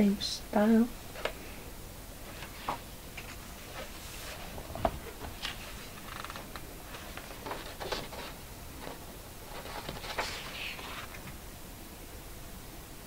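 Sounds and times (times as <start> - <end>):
hands rustling paper pages: 2.2 - 11.4
page turning: 2.3 - 11.4.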